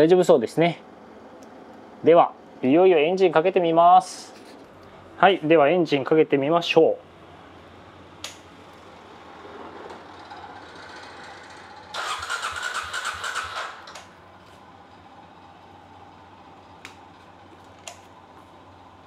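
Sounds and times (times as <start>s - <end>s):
click: 8.2s - 8.4s, 17.8s - 18.1s
electric starter cranking engine: 9.5s - 14.1s.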